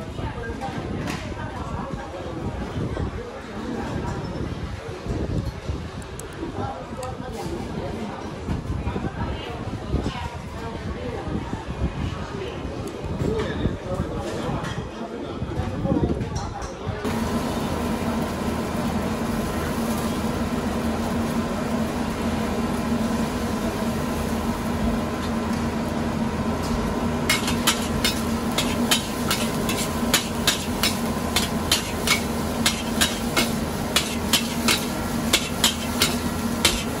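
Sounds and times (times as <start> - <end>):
low kitchen hum: 17.0 - 37.0
metal ladle clanking on wok: 27.3 - 37.0.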